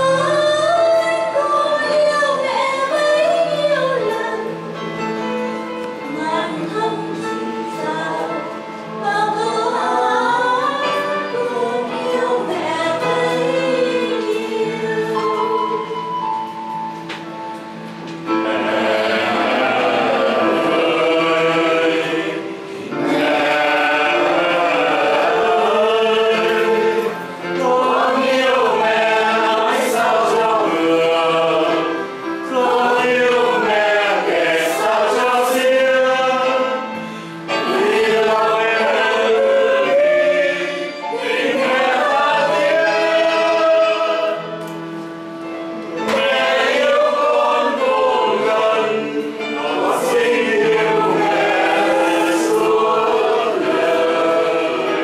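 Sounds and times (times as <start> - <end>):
group singing a hymn: 5.9 - 16.2, 17.9 - 55.0.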